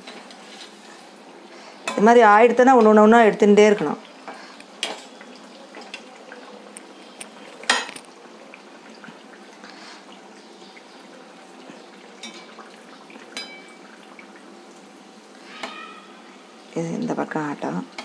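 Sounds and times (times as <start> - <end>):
batter deep-frying in oil: 0.0 - 18.0
metal ladle clinking on pan: 13.4 - 13.7.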